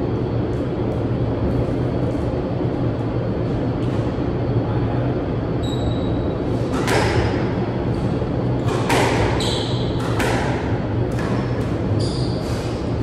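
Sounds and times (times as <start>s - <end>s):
steady low hum: 0.0s - 13.0s
squash ball hits with echo: 6.7s - 7.6s, 8.6s - 12.0s.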